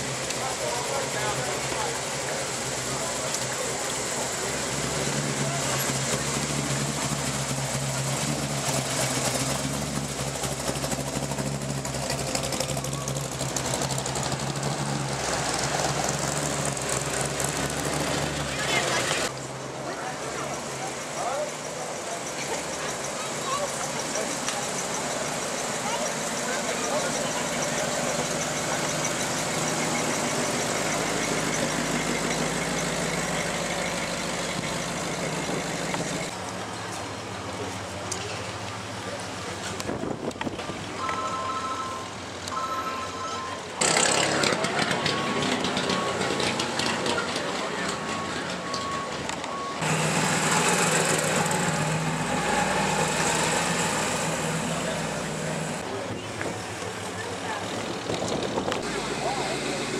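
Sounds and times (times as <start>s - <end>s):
hot rod engine running: 0.0s - 36.4s, 43.8s - 59.9s
sports car passing: 49.8s - 59.9s.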